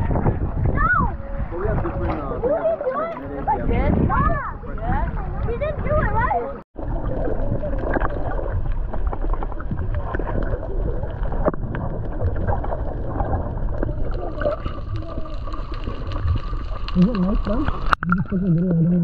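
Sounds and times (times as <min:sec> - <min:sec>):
wind and water around boat: 0:00.0 - 0:15.2.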